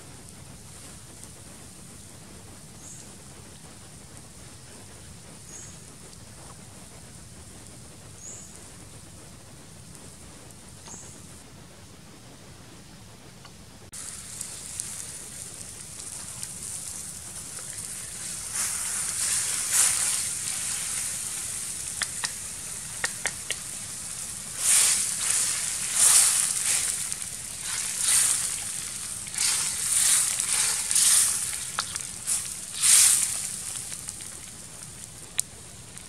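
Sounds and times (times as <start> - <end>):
frogs sizzling in hot oil: 14.0 - 36.0
sharp clicks: 14.8 - 35.6.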